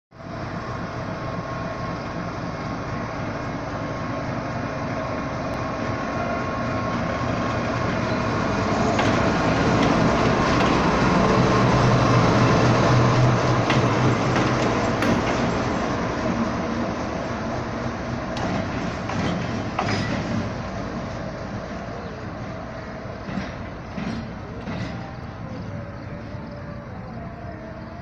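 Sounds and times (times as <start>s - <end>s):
locomotive engine running: 0.2s - 28.0s
wheels clicking over rail joints: 7.0s - 26.8s.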